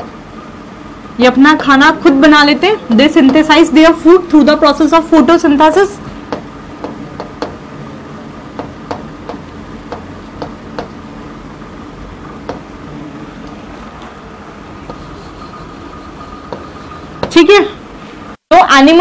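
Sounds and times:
faint room hum: 0.0s - 19.0s
chalk tapping on blackboard: 6.3s - 7.6s, 8.6s - 11.0s, 12.5s - 12.7s, 14.8s - 17.4s.

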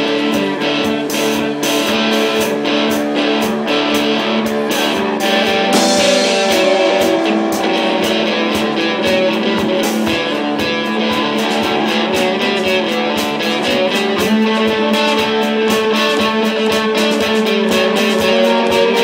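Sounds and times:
drums: 0.0s - 19.0s
electric guitars: 0.0s - 19.0s
cymbal hits: 5.1s - 13.6s.

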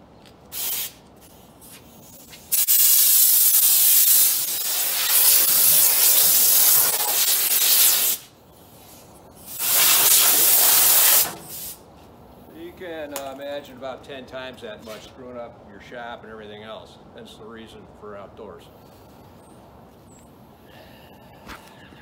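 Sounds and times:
air blow gun hissing: 0.5s - 1.0s, 1.6s - 8.3s, 9.4s - 11.8s.

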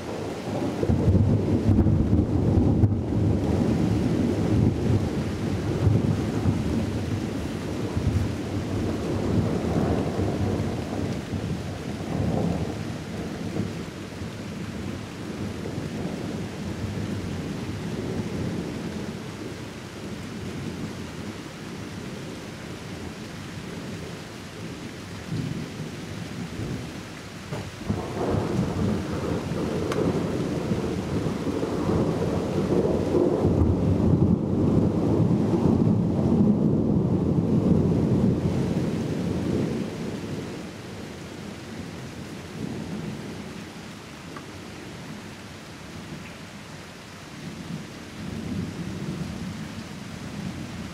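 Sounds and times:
rolling thunder: 0.0s - 13.9s, 27.5s - 40.6s.

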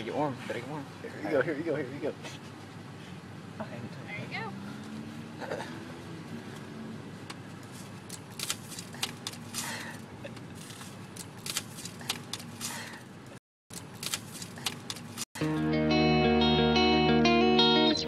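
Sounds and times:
sharp clicks and rustles: 6.5s - 13.0s, 13.7s - 15.3s
electric guitar music: 15.4s - 18.0s.

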